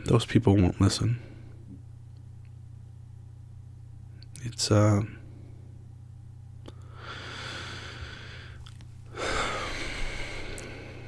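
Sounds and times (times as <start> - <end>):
low steady hum: 0.0 - 11.0
man breathing in and sighing: 6.8 - 11.0.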